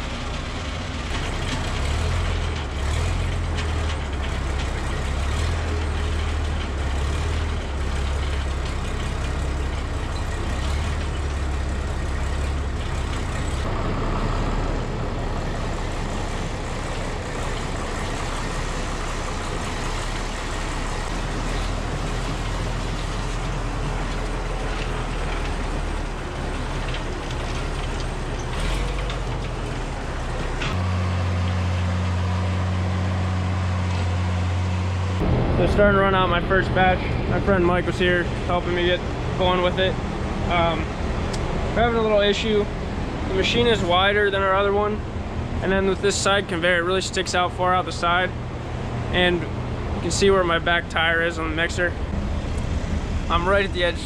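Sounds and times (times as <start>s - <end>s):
tractor engine drone: 0.0s - 54.0s.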